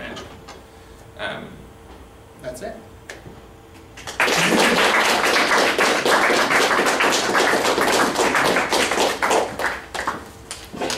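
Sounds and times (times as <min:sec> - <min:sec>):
audience applauding: 0:04.0 - 0:10.9.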